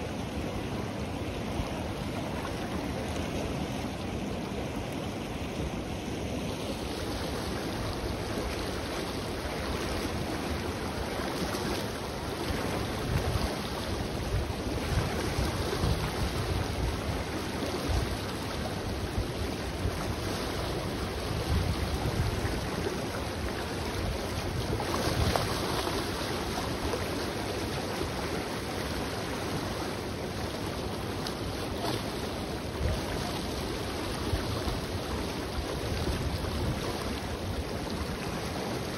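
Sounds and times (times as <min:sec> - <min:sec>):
river rushing and churning: 0:00.0 - 0:38.9
wind buffeting microphone: 0:20.8 - 0:25.8.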